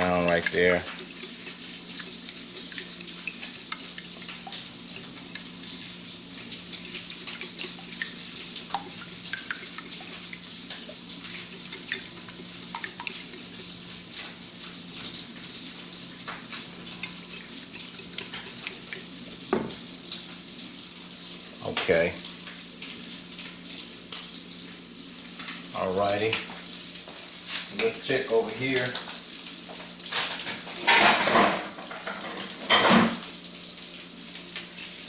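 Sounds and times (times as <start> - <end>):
whisk beating eggs in a dish: 0.0 - 19.6
sausage sizzling in a skillet: 0.0 - 35.0.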